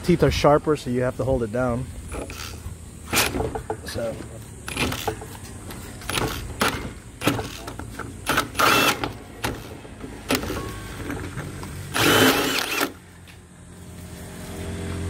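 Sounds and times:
drill cutting through plastic: 0:08.3 - 0:09.7, 0:11.9 - 0:13.0.

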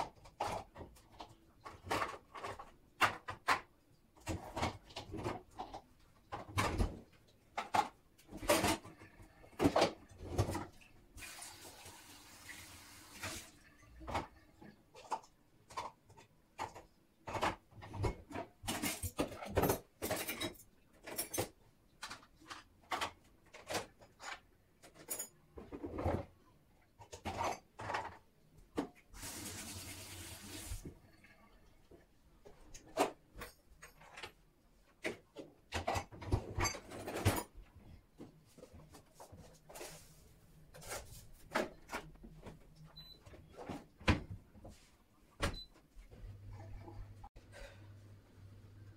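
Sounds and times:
kitchen tap running: 0:29.2 - 0:30.8.

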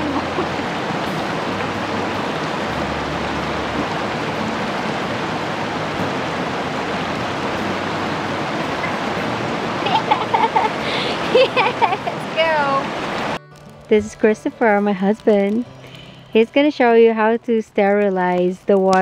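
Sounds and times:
river water rushing: 0:00.0 - 0:14.8.

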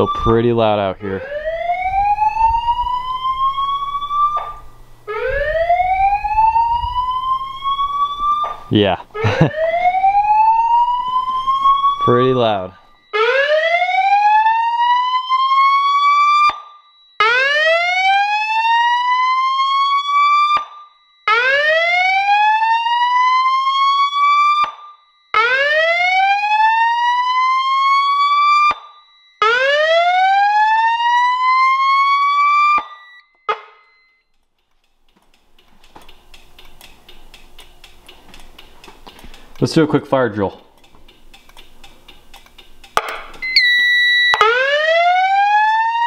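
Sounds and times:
whooping evacuation siren: 0:00.0 - 0:33.9, 0:43.4 - 0:46.0.

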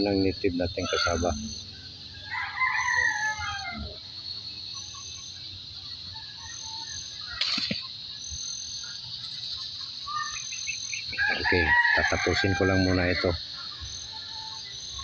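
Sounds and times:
insects droning: 0:00.0 - 0:15.0
rooster crowing: 0:00.8 - 0:04.0, 0:11.1 - 0:14.7.

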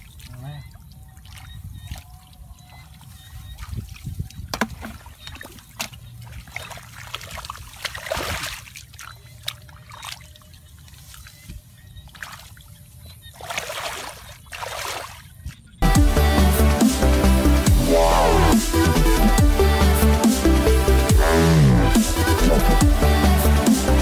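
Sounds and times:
water splashing and trickling: 0:00.0 - 0:24.0
hands digging in wet mud: 0:01.2 - 0:11.4.

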